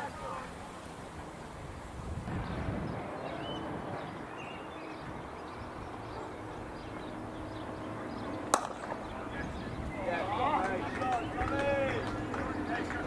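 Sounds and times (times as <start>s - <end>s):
cricket bat striking ball: 8.5s - 9.2s.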